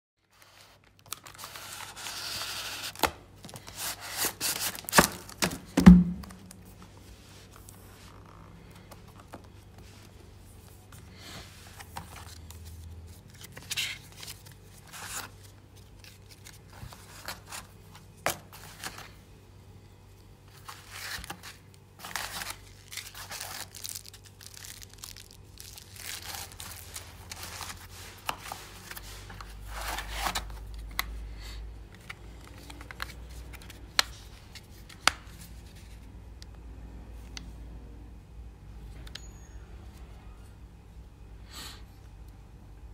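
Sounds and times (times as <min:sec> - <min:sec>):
packaging rustling and scraping: 0:00.2 - 0:19.2, 0:20.5 - 0:31.0
sharp knock: 0:05.8 - 0:06.4
plastic shrink wrap tearing: 0:22.0 - 0:27.8.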